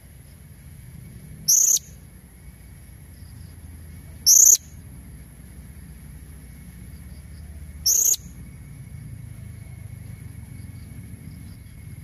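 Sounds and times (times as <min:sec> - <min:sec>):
parrot high-pitched calls: 0:01.5 - 0:02.0, 0:04.2 - 0:04.6, 0:07.8 - 0:08.3.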